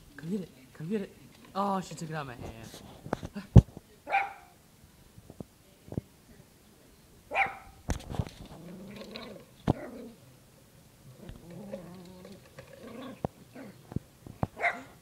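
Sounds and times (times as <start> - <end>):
puppy barking: 4.1 - 4.6, 7.3 - 7.8, 14.6 - 15.0.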